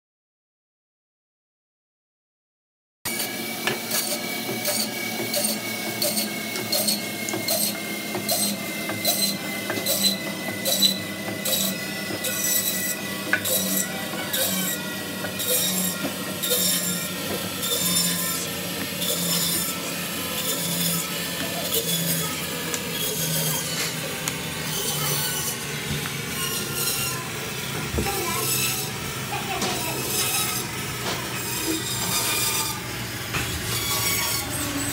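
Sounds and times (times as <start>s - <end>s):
band saw cutting through bone: 3.1s - 34.9s.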